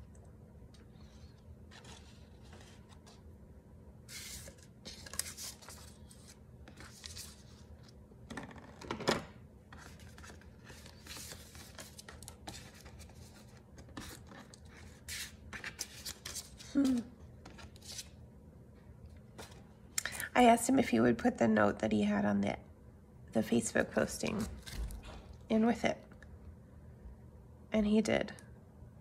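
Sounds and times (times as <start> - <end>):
paper rustling and scraping: 1.0 - 3.3, 4.1 - 8.0, 9.7 - 16.8.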